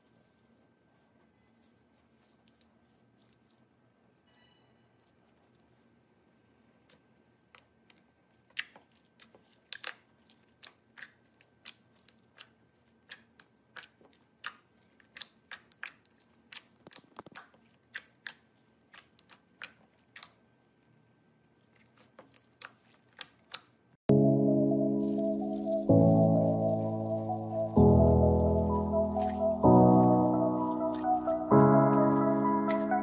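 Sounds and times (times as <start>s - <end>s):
slime clicking and popping: 7.6s - 20.4s.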